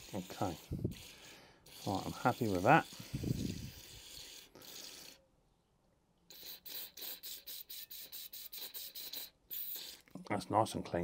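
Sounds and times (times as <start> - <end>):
quick rasping strokes: 0.0 - 5.2, 6.3 - 10.2.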